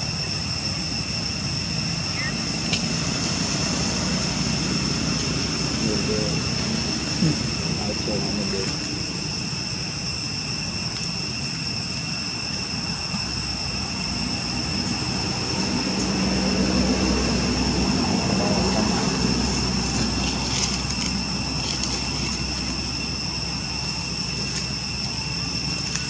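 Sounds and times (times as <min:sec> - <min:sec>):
high-pitched whine: 0:00.0 - 0:26.0
vehicle engine passing: 0:14.8 - 0:21.7.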